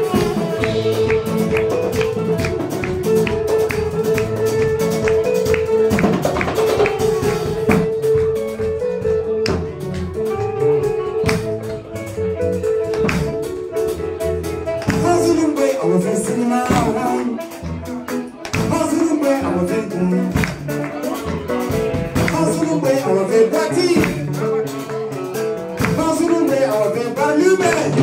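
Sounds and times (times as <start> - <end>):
drum kit hits: 0.0 - 15.4
saxophone: 0.0 - 25.9
bass guitar: 0.0 - 28.0
electric guitar: 0.0 - 28.0.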